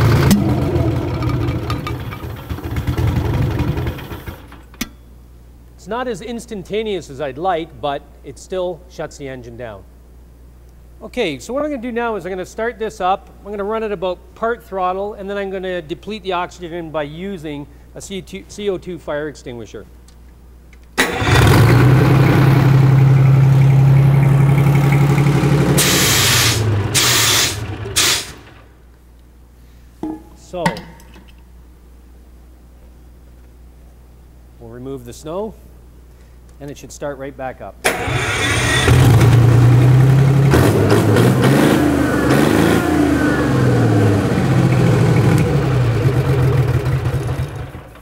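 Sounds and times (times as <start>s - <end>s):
diesel engine running: 0.0s - 4.6s, 21.0s - 28.7s, 37.9s - 48.0s
fire extinguisher hissing: 25.8s - 28.6s.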